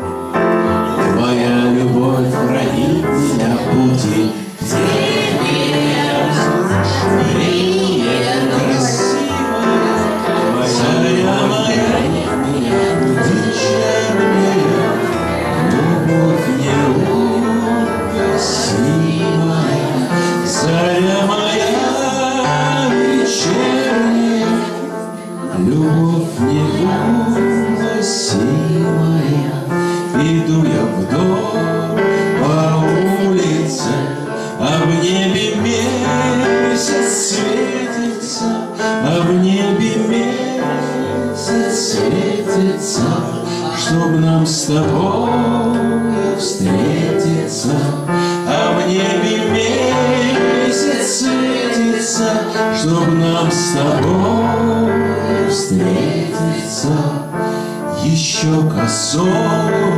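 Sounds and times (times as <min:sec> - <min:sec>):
electronic keyboard playing: 0:00.0 - 0:59.9
person singing: 0:00.0 - 0:59.9.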